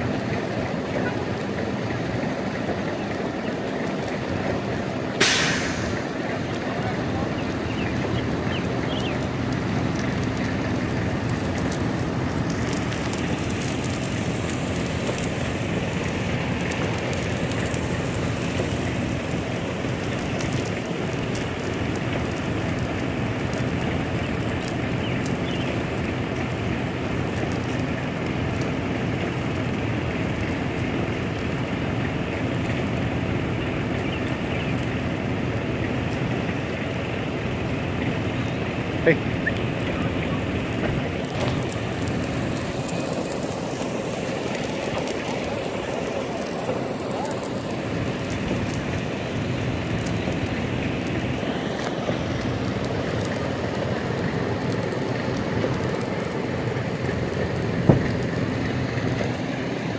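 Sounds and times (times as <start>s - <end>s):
sealer spraying hiss: 5.2s - 6.0s.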